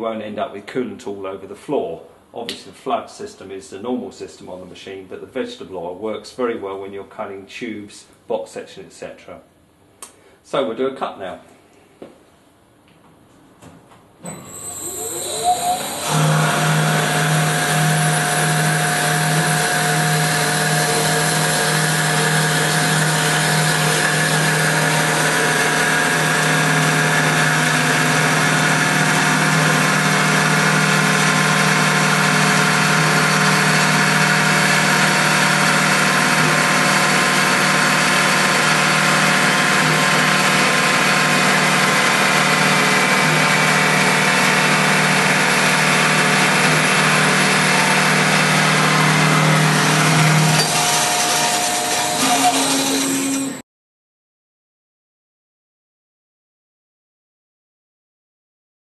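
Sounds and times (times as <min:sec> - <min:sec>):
bandsaw cutting metal: 0:14.4 - 0:53.6.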